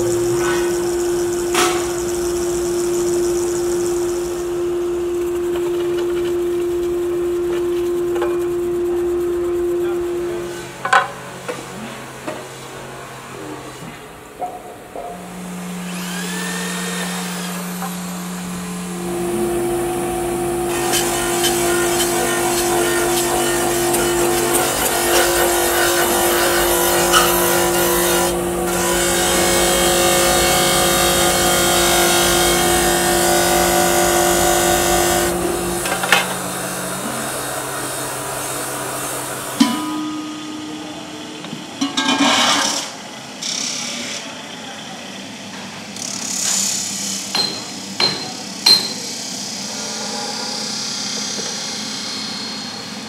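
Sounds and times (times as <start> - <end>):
electric drill on metal plate: 0.0 - 10.0, 15.6 - 39.7
buffing wheel motor running: 0.0 - 11.3, 15.2 - 41.2.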